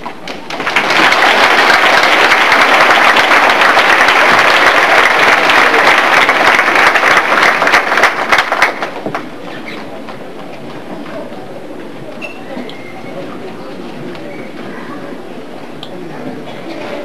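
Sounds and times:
audience applauding: 0.3s - 9.3s.

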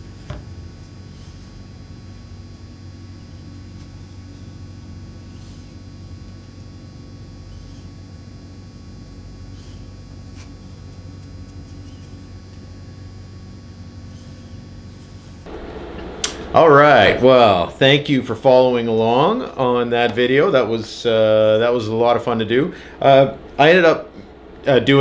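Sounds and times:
low room hum: 0.0s - 25.0s
sharp click: 16.2s - 16.4s.

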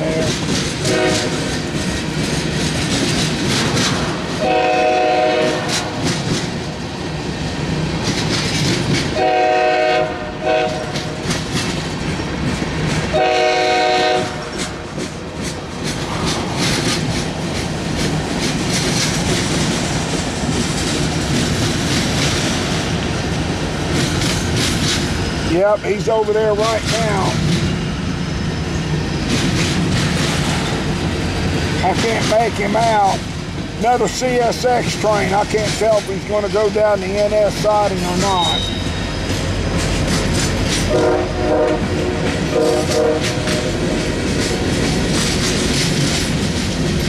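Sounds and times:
freight cars rolling on rails: 0.0s - 47.0s
locomotive horn: 0.8s - 1.5s, 4.4s - 5.9s, 9.2s - 11.2s, 13.1s - 14.6s, 38.2s - 39.0s, 40.9s - 43.7s.

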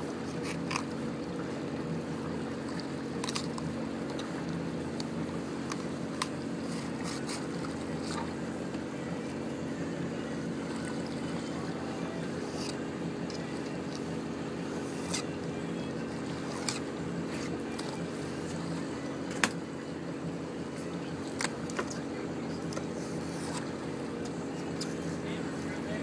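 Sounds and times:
boat engine humming: 0.0s - 26.0s.

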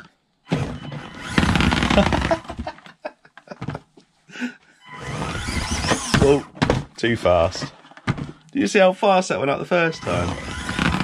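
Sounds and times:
small electric motor and gears: 1.1s - 2.2s, 4.9s - 6.4s, 9.9s - 11.0s.

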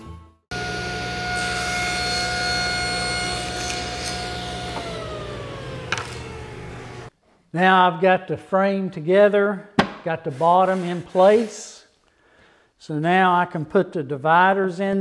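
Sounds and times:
table saw whining: 0.5s - 7.1s.

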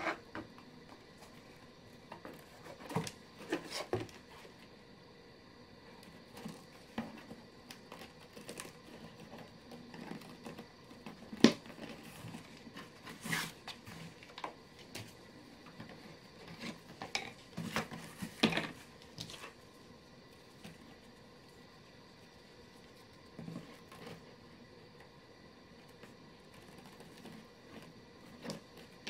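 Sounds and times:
leather rubbing and scraping: 11.8s - 14.2s.

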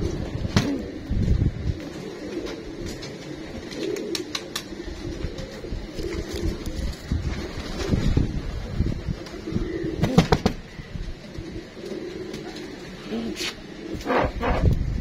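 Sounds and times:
pigeons cooing: 0.0s - 15.0s.

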